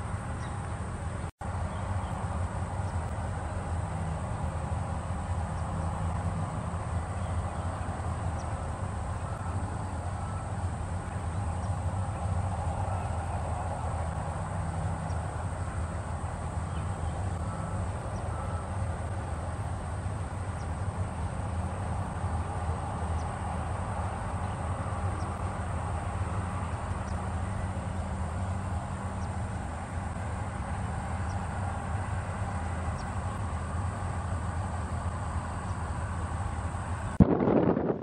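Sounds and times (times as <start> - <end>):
constant low rumble: 0.0 - 38.0.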